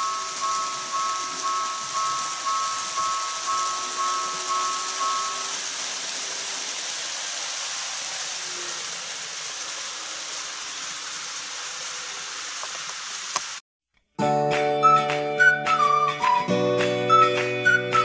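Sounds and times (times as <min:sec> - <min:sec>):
thin steady whine: 0:00.0 - 0:12.8
model train running on track: 0:00.0 - 0:13.6, 0:15.4 - 0:18.0.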